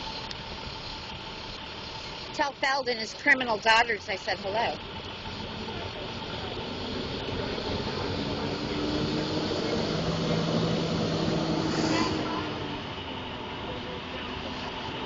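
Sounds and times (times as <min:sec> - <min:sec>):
heavy vehicle engine humming: 0:00.0 - 0:15.0.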